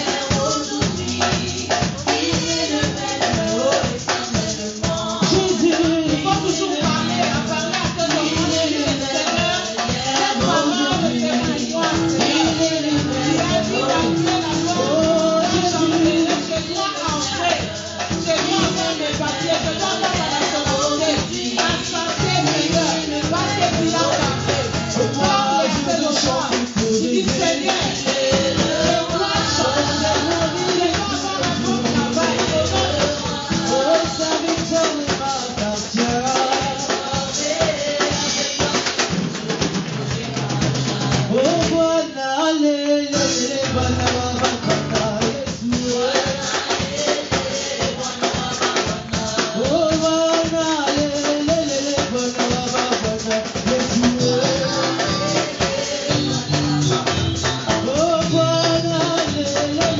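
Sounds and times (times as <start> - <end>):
women's choir singing: 0.0 - 26.2, 27.0 - 34.6, 36.4 - 41.5, 45.9 - 49.8, 54.2 - 58.0
drums and percussion: 0.0 - 59.9.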